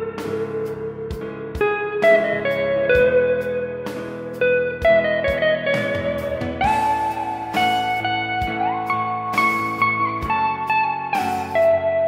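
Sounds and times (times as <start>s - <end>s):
guitar background music: 0.0s - 12.0s.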